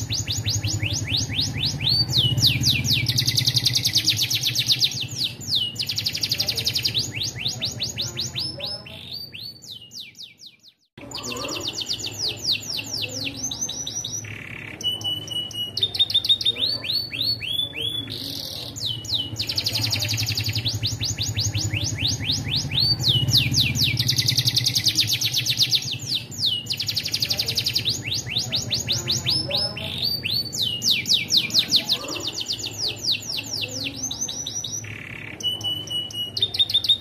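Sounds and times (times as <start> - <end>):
canary singing trills: 0.0 - 37.0.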